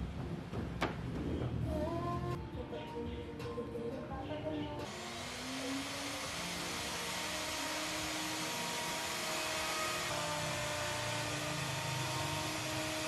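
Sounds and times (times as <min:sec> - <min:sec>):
electric router cutting wood: 0:04.8 - 0:13.0.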